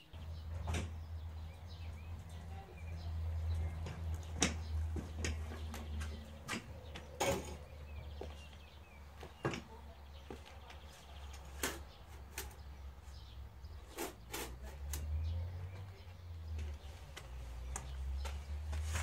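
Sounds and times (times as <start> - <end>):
shovel scraping wheelbarrow: 13.9 - 14.8.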